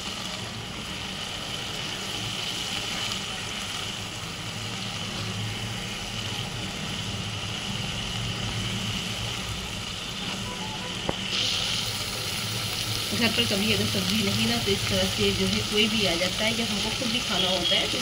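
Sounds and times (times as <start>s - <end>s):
eggs sizzling in a pan: 0.0s - 18.0s.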